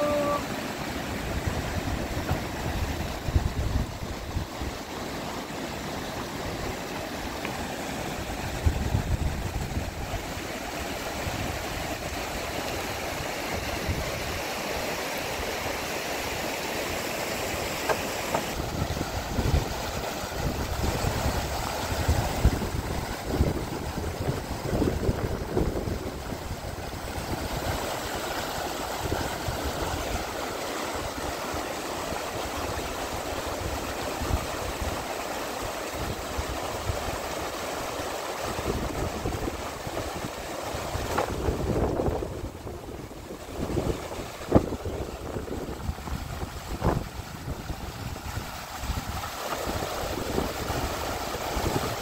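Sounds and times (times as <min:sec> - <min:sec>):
water rushing: 0:00.0 - 0:52.0
low rumbling gusts: 0:01.1 - 0:04.8, 0:08.2 - 0:10.3.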